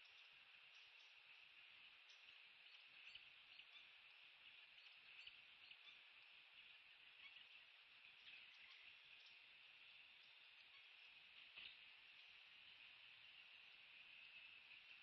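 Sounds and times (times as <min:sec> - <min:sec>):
faint high-pitched outdoor hiss: 0:00.0 - 0:15.0.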